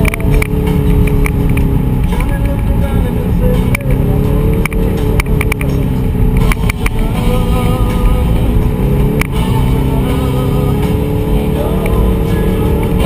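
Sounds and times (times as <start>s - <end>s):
sharp knocks and clicks: 0.0s - 2.7s, 3.6s - 7.0s
vehicle engine running: 0.0s - 13.0s.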